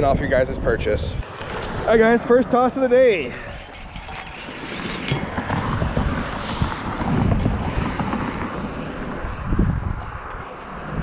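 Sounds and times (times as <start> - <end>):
rope rubbing and knocking: 3.5 - 9.1.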